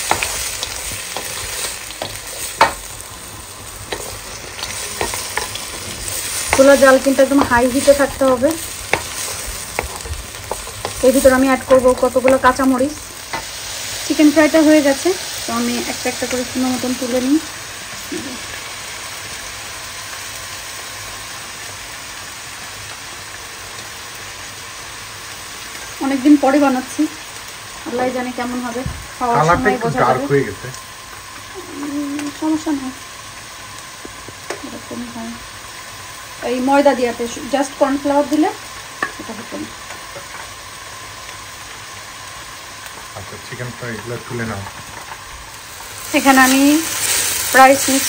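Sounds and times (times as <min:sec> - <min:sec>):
food sizzling in a hot pan: 0:00.0 - 0:48.0
wooden spatula scraping a pan: 0:03.8 - 0:11.8.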